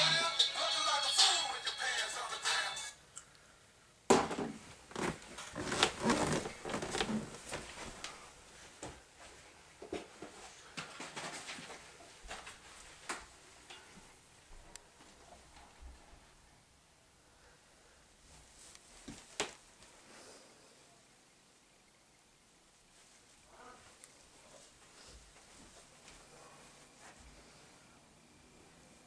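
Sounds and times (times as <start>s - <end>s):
rustling: 4.5s - 14.0s.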